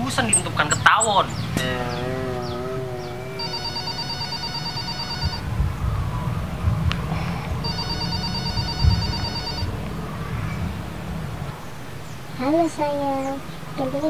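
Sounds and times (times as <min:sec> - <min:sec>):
electronic phone ringtone trilling: 0:03.4 - 0:05.5, 0:07.6 - 0:09.7.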